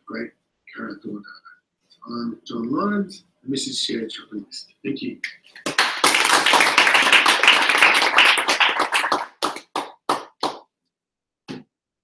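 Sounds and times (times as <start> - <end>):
audience applauding: 5.5 - 10.6.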